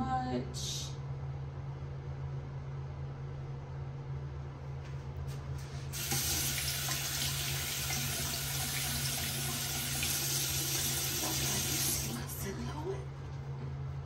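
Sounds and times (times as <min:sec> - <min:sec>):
water running from tap: 0:05.9 - 0:12.5.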